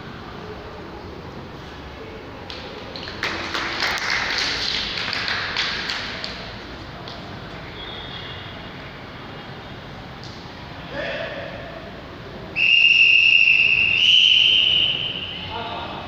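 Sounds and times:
spectators clapping: 2.4 - 7.2.

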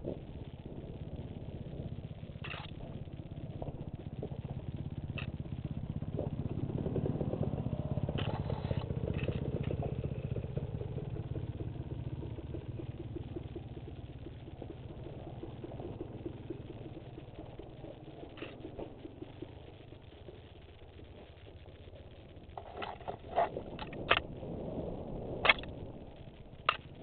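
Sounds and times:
dirt bike engine: 0.0 - 27.0.

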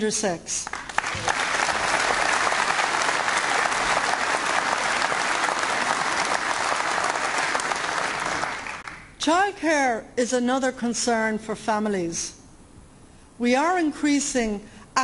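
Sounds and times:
audience applauding: 0.7 - 9.1.

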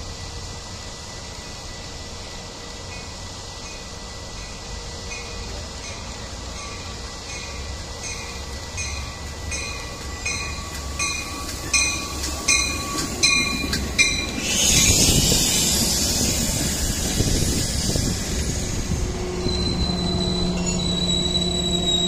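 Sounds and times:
train rushing: 0.0 - 22.0
crossing bell ringing: 2.8 - 14.4, 19.2 - 22.0.

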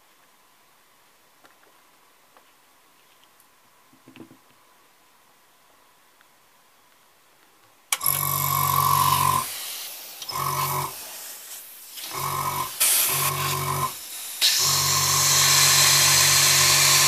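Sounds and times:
airbrush compressor motor humming: 8.0 - 9.6, 10.2 - 11.2, 12.0 - 17.0.

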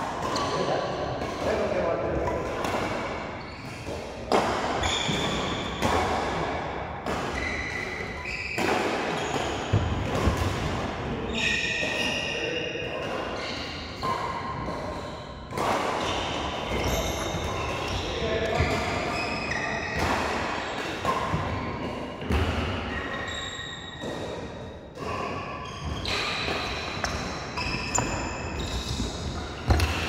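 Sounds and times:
racket hitting shuttlecock: 0.0 - 12.1, 12.8 - 23.2, 23.9 - 30.0
shoes squeaking on court: 25.0 - 30.0.

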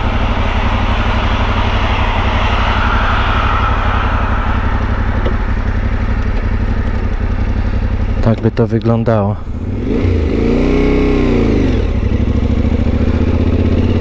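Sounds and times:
broad rushing noise: 0.0 - 8.3
motorcycle engine idling: 0.0 - 10.3, 10.9 - 14.0.

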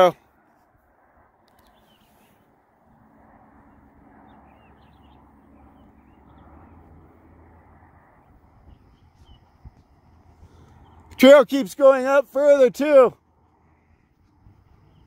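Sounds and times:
faint bird chirps: 1.5 - 2.4, 8.6 - 9.8
steady low rumble: 2.5 - 11.2.

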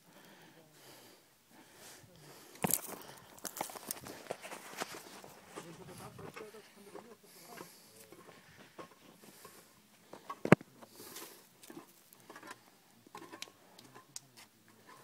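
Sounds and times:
phone handling clicks and rustles: 2.6 - 6.5, 10.2 - 10.8.

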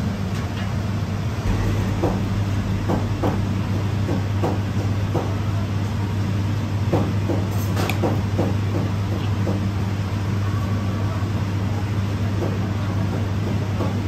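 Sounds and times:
low machine hum: 1.4 - 8.5.

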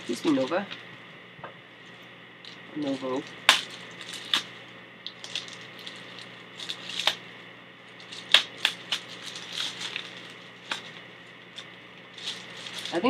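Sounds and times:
plastic packaging crinkling: 0.0 - 0.9, 1.8 - 13.0
scissors snipping plastic: 2.9 - 4.5, 5.1 - 7.2, 8.0 - 11.0, 11.6 - 13.0.

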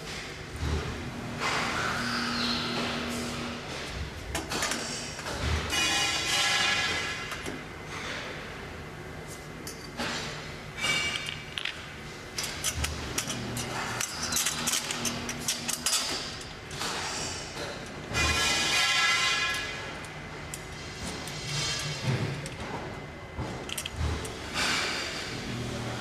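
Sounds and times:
metal parts clinking and knocking: 10.8 - 11.8, 12.4 - 17.0, 23.6 - 24.4.

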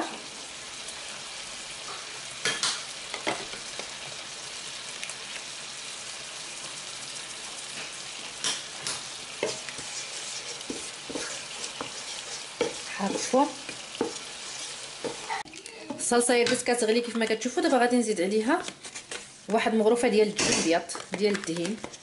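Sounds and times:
sauce sizzling in a pan: 0.0 - 18.5
wooden spoon scraping a pan: 7.7 - 17.4, 18.3 - 19.6.

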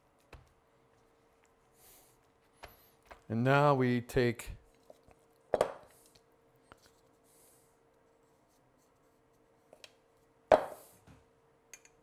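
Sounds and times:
faint clicks and taps: 0.1 - 1.6.

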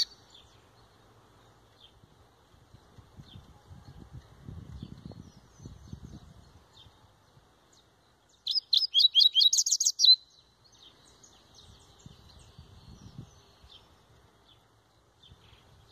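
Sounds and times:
bird singing rapid high notes: 8.4 - 13.9.

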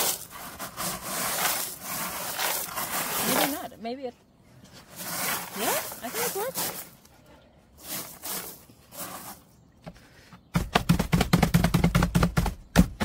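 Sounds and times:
hands rustling gravel: 0.0 - 4.0, 4.7 - 7.1, 7.8 - 9.6
fast sharp knocks: 10.5 - 13.0.

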